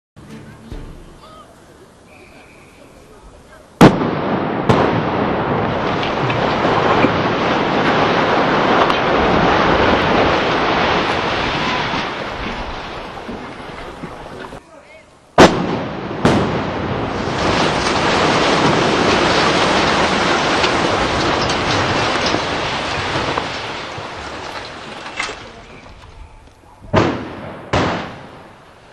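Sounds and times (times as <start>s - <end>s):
detonation blasts: 3.8s - 14.6s, 15.4s - 25.8s, 26.9s - 28.7s
rumble of building collapsing: 3.8s - 14.6s, 15.5s - 28.6s.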